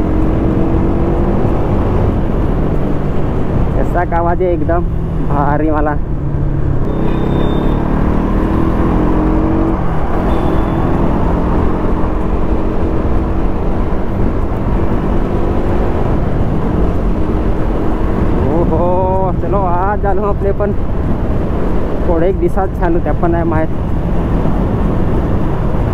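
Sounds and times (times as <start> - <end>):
motorcycle engine running: 4.8 - 19.8.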